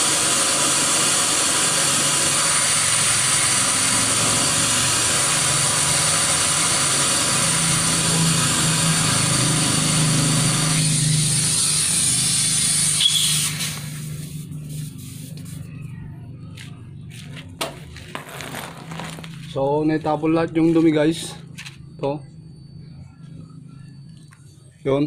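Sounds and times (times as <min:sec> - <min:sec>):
compressed air hissing from nozzle: 0:00.0 - 0:15.7
low hum: 0:13.0 - 0:24.8.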